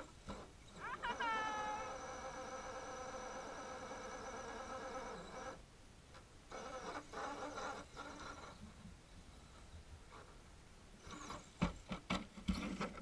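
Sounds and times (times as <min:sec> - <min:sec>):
toy truck motor whine: 0:00.0 - 0:05.6, 0:06.5 - 0:08.6.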